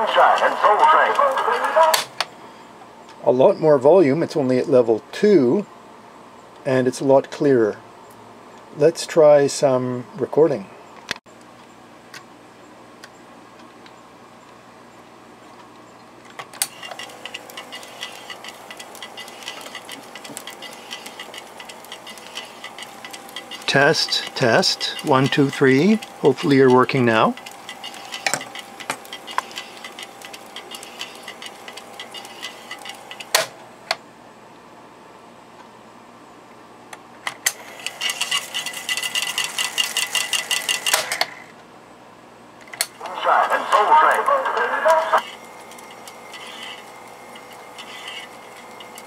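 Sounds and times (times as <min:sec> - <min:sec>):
tape recorder transport click: 0:15.7 - 0:34.0
tape mechanism ticking: 0:16.6 - 0:33.5, 0:37.5 - 0:41.3, 0:45.2 - 0:49.0
faint steady hum: 0:40.5 - 0:49.0.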